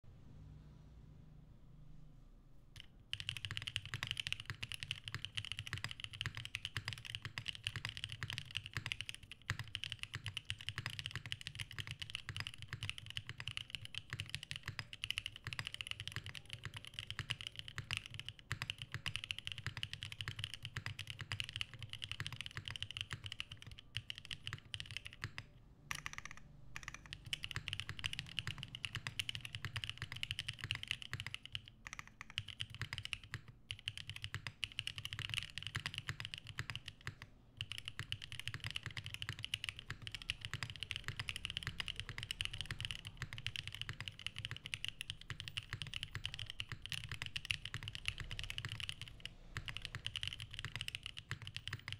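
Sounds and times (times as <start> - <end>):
mechanical keyboard typing: 2.8 - 51.9.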